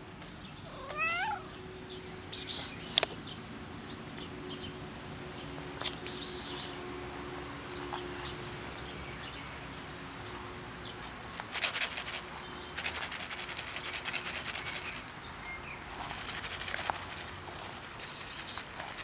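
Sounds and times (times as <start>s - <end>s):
crackly rustling: 10.3s - 15.1s, 15.9s - 19.0s.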